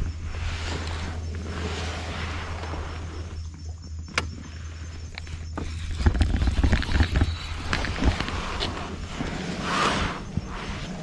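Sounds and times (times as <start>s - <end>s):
steady low rumble: 0.0s - 11.0s
close knocks and rustles: 5.2s - 9.4s.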